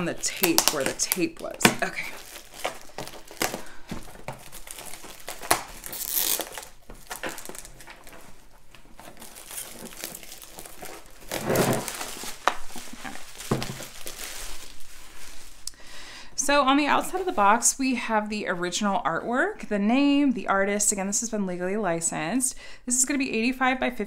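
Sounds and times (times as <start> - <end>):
plastic shrink wrap crinkling: 0.0 - 15.8.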